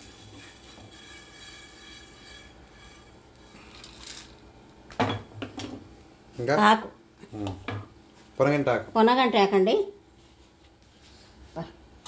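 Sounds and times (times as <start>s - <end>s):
wooden spatula stirring: 0.0s - 4.1s
seeds roasting in iron pan: 0.0s - 5.0s.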